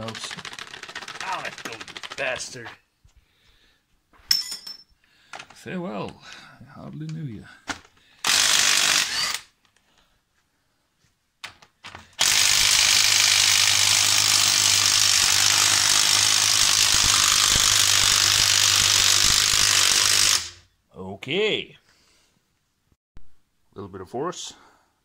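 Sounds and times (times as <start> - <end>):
cordless impact tool running: 0.1 - 2.2, 8.2 - 9.5, 12.2 - 20.6.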